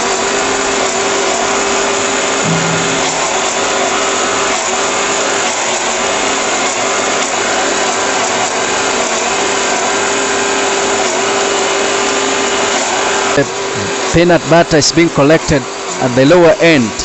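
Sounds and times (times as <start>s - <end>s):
electric grinder crushing peanuts: 5.0s - 14.3s.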